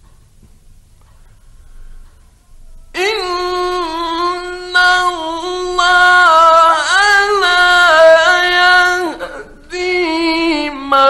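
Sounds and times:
man chanting melodically: 2.9s - 11.0s.

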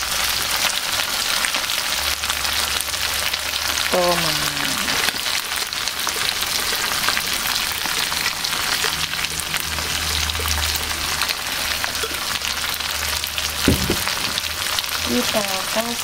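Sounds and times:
oil sizzling in a pan: 0.0s - 16.0s
sharp knock: 13.7s - 14.4s.

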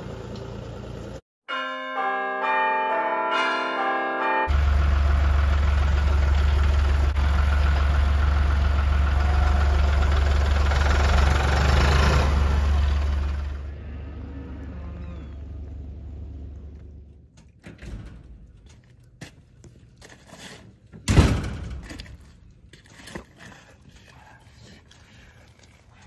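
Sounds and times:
tractor engine running: 0.0s - 1.2s, 4.5s - 19.9s.

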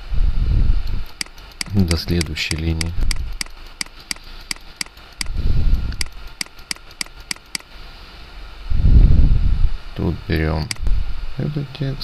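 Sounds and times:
computer mouse clicking: 0.9s - 7.7s.

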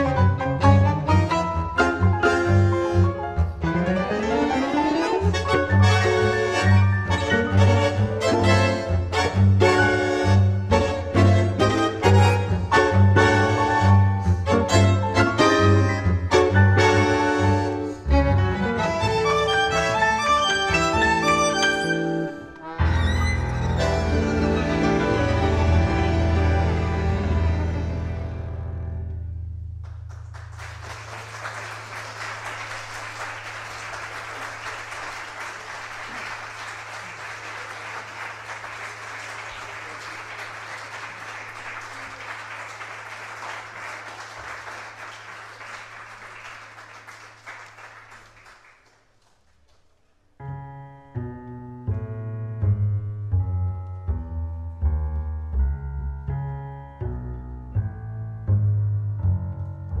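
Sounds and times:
tango quintet playing: 0.0s - 29.4s, 50.4s - 60.0s
audience applauding: 29.8s - 50.0s.

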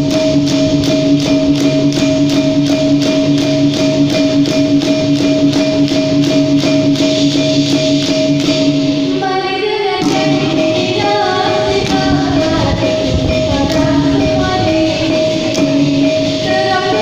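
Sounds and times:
hand percussion: 0.0s - 9.2s, 10.0s - 17.0s
girl singing into a microphone: 9.1s - 17.0s.

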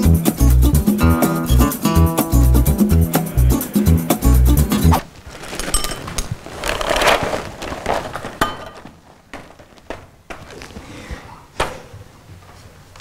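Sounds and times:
plastic packaging crinkling: 5.0s - 10.8s.

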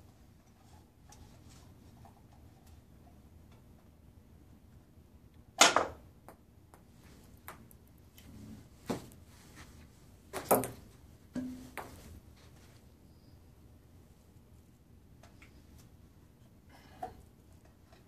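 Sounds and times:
ball launcher snapping: 5.6s - 6.0s.

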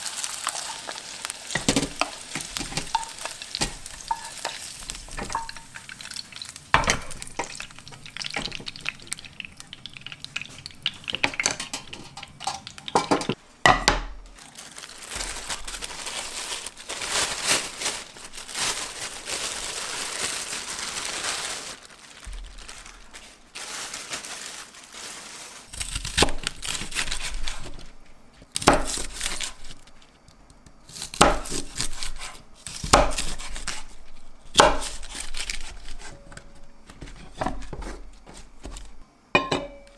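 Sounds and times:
metal tray and utensils clinking: 10.4s - 14.0s
rustling: 14.2s - 30.2s.

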